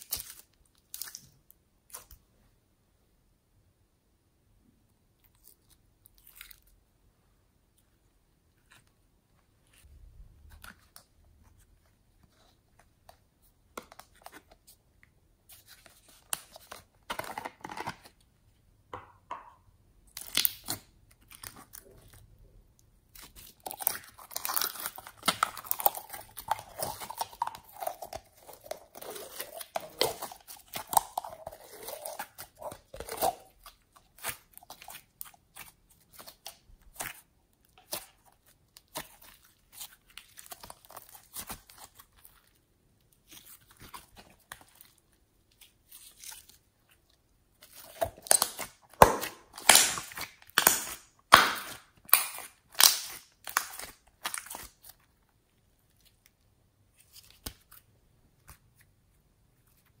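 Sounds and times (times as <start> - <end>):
slime squeezed with wet pops: 47.7 - 54.7.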